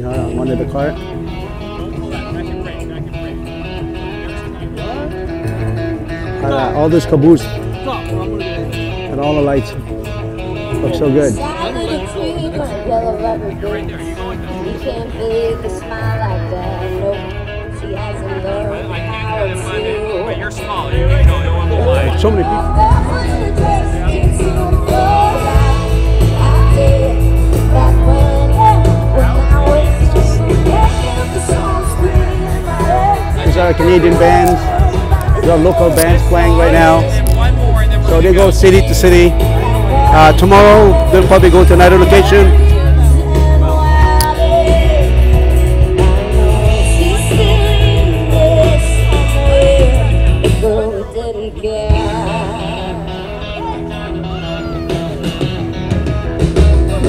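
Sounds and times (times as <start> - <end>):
live rock band playing: 0.0 - 57.0
person singing lead vocal: 11.4 - 57.0
heavy bass: 20.9 - 50.8.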